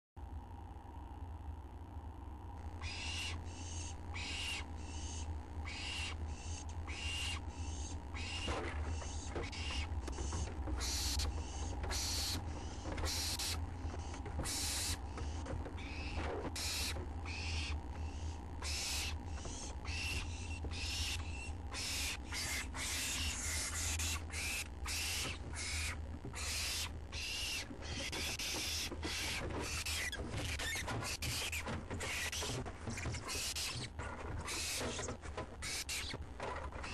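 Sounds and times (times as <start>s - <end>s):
steady low hum: 0.2s - 36.9s
owlets raspy hissing begging calls: 2.8s - 10.0s, 10.8s - 13.6s, 14.5s - 15.1s, 15.8s - 30.1s.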